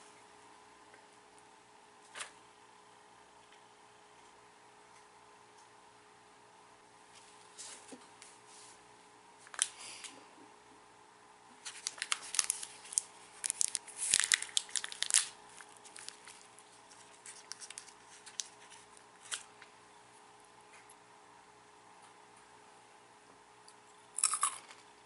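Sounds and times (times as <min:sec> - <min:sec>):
plastic snack pouch tearing: 0:11.6 - 0:19.5.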